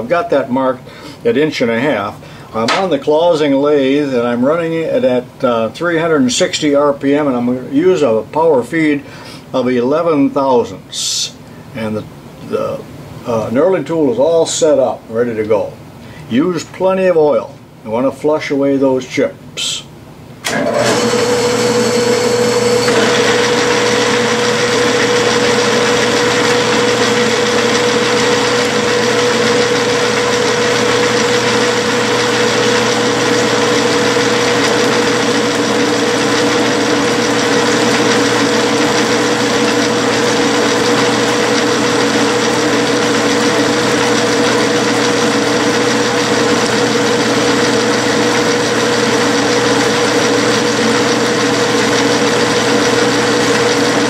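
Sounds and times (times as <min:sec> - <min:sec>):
metal lathe humming with whine: 0:20.5 - 0:54.0.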